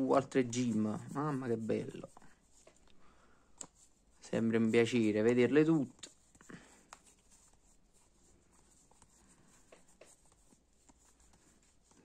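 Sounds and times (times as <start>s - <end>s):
trading cards rustling: 0.0s - 12.0s.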